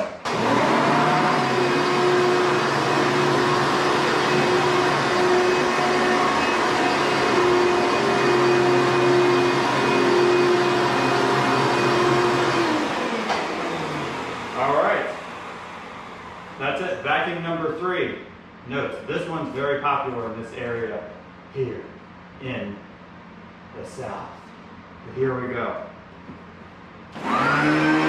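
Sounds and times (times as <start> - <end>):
vacuum cleaner motor whining: 0.0 - 16.5, 27.1 - 28.0.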